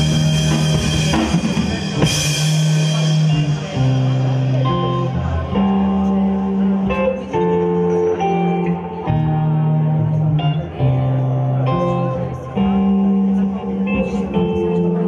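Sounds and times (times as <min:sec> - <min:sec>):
drum and cymbal hits: 0:00.0 - 0:05.2
bass guitar: 0:00.0 - 0:15.0
electric guitar: 0:00.0 - 0:15.0.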